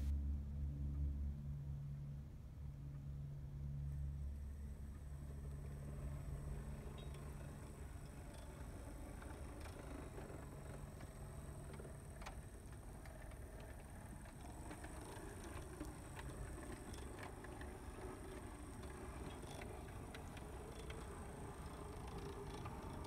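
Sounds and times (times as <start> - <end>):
model locomotive motor drone: 3.7 - 23.0
wheels clicking on rails: 4.8 - 23.0.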